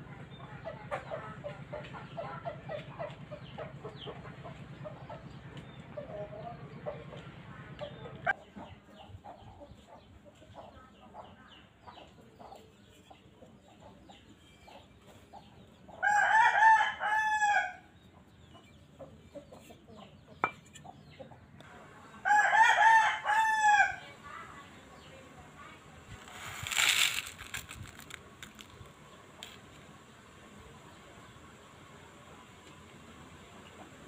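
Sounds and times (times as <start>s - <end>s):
rooster crowing: 16.0s - 17.8s, 22.3s - 24.0s.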